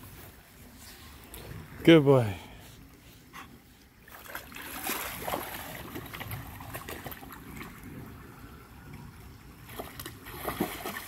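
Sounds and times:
creek trickling: 0.1s - 11.0s
dog splashing in water: 4.0s - 7.8s, 9.7s - 11.0s.

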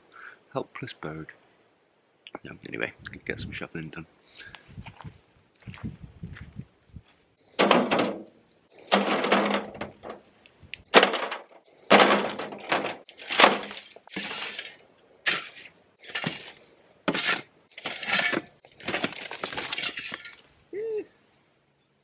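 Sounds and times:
earth tipped into metal wheelbarrow: 7.6s - 10.2s, 10.9s - 20.5s
shovel scraping dry earth: 12.0s - 20.5s.

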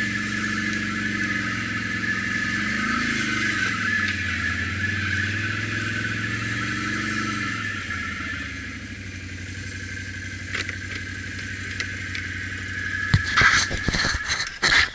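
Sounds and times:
atv engine running: 0.0s - 14.9s
sharp knocks and clatter: 13.1s - 14.9s.

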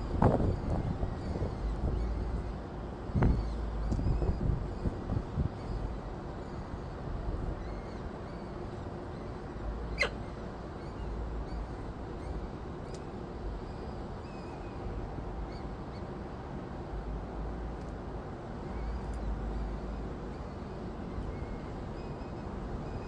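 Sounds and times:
wind on microphone: 0.0s - 7.6s
faint high bird chirps: 7.6s - 12.4s.

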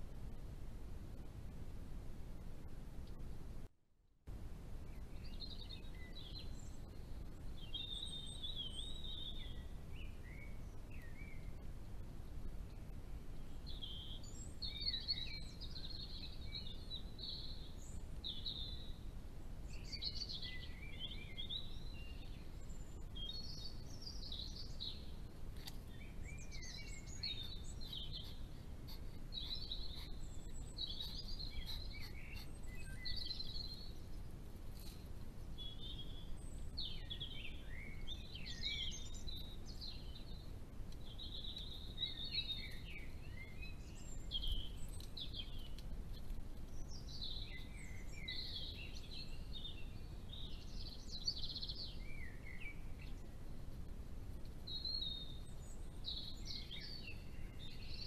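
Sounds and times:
low background rumble: 0.0s - 58.0s
songbird warbling: 25.6s - 34.0s.

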